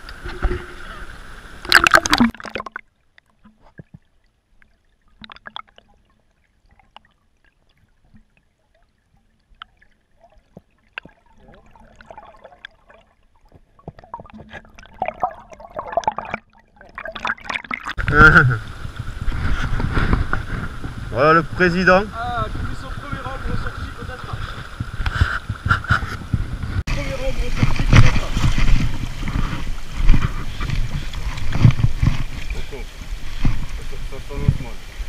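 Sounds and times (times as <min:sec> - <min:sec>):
faint water gurgling: 0:00.0 - 0:35.0
rushing water: 0:00.0 - 0:35.0
small underwater clicks: 0:09.1 - 0:12.8.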